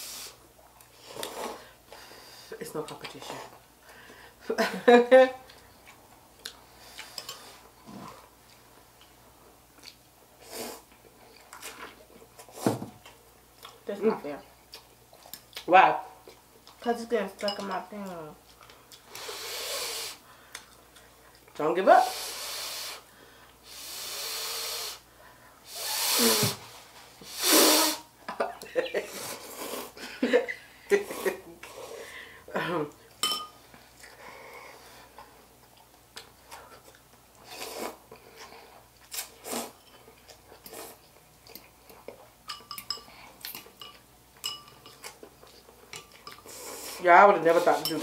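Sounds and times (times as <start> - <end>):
soft chewing: 5.4 - 10.2, 10.9 - 13.8, 14.6 - 16.8, 18.4 - 19.1, 20.4 - 21.6, 32.9 - 47.0.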